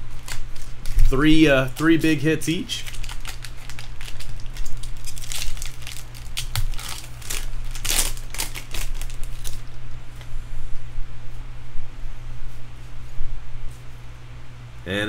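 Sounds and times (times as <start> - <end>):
foil wrapper crinkling: 0.0 - 9.8
steady low hum: 0.0 - 15.0.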